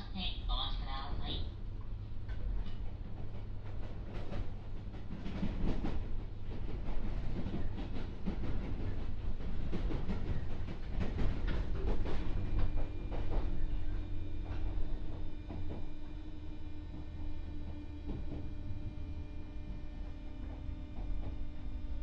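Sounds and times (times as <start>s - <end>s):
low hum of train equipment: 0.0s - 22.0s
knocks and clatter: 2.2s - 16.1s, 16.9s - 18.6s.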